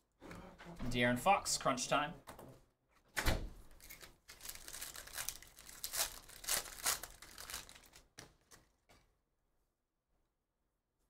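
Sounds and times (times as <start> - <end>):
foil wrapper tearing and crinkling: 3.8 - 8.6.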